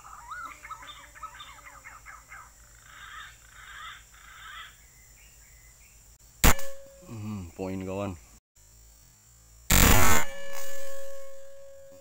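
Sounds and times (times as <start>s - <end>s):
bird calling harshly: 0.0s - 4.8s
air rifle shot: 6.4s - 6.8s.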